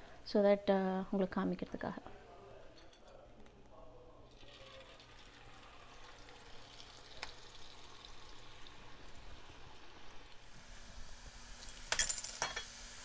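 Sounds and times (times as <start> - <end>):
dough sizzling in hot oil: 4.3 - 13.0.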